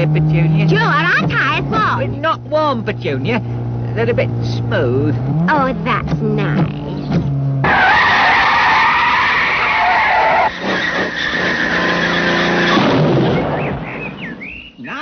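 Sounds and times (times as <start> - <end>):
low steady humming: 0.0 - 7.7
car tyres screeching: 0.0 - 14.7.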